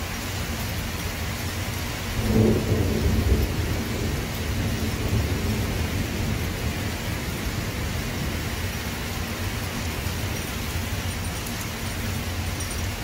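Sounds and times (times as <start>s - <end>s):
steady rain: 0.0s - 13.0s
thunder rumbling: 2.1s - 11.2s.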